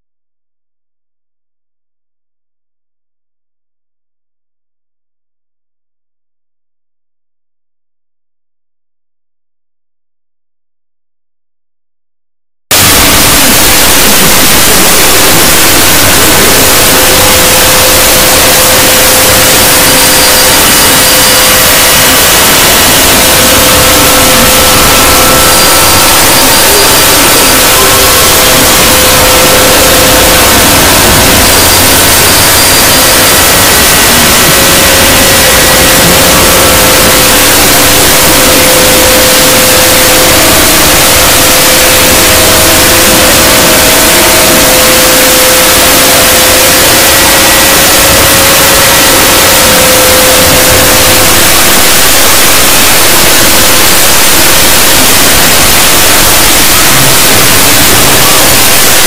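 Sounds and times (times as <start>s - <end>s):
distorted clipped noise: 12.7s - 59.0s.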